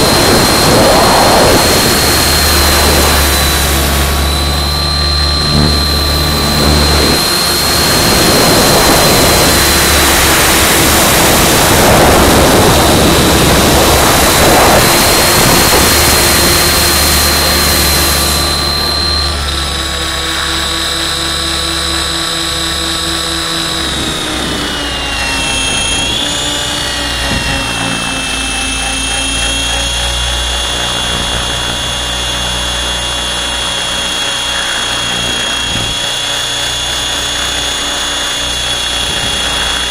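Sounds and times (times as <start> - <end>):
rush of air: 0.0 - 19.6
helicopter rotor whine: 0.0 - 39.9.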